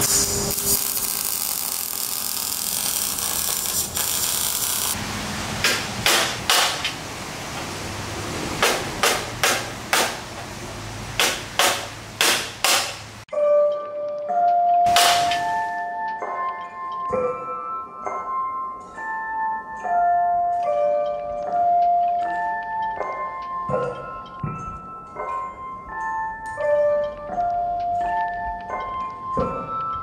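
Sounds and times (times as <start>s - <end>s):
welding arc sizzling and crackling: 0.0s - 7.7s, 14.9s - 15.8s
hammer striking steel: 5.6s - 7.0s, 8.6s - 10.2s, 11.2s - 13.1s, 14.9s - 15.8s
chime-like music: 13.3s - 14.9s, 15.5s - 30.0s.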